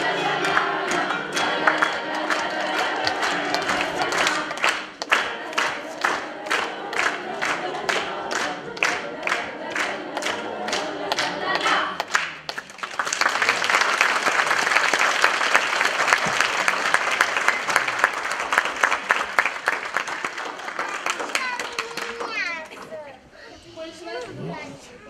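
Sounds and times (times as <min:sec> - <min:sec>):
children's choir singing: 0:00.0 - 0:12.3
applause: 0:01.6 - 0:10.4, 0:11.1 - 0:22.9
clapping in time: 0:11.2 - 0:22.9.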